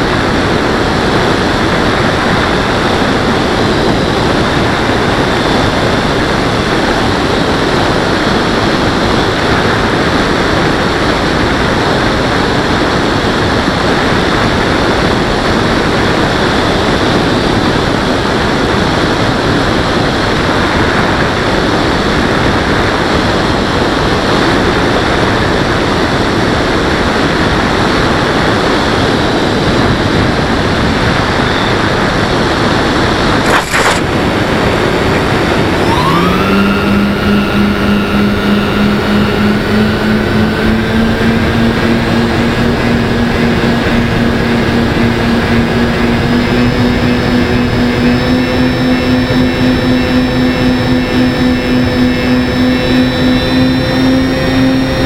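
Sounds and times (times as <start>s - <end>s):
wind and motor noise: 0.0s - 55.0s
sharp click: 33.5s - 34.1s
motor tone rising in pitch: 35.1s - 55.0s.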